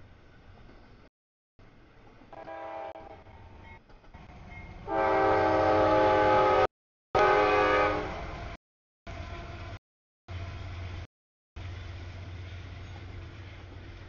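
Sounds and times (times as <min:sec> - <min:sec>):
locomotive air horn: 0:02.3 - 0:03.3, 0:04.9 - 0:08.3.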